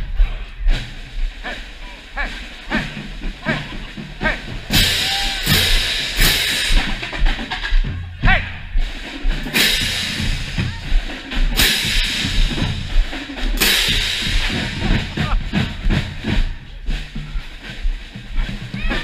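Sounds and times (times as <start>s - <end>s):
marching drums rhythm: 0.0s - 19.0s
crash cymbals clashing: 4.7s - 7.0s, 9.5s - 10.7s, 11.6s - 15.0s.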